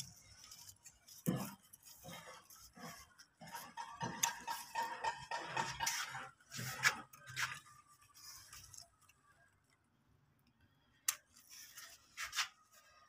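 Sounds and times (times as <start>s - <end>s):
leaves rustling: 5.8s - 9.2s.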